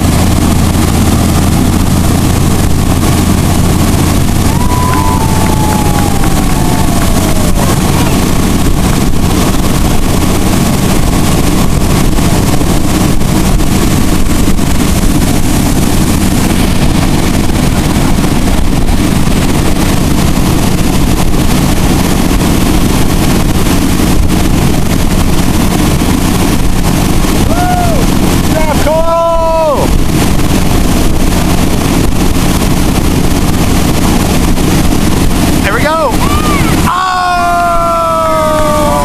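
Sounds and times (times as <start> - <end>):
boat motor running: 0.0 - 39.0
rushing wake water: 0.0 - 39.0
wind on microphone: 0.0 - 39.0.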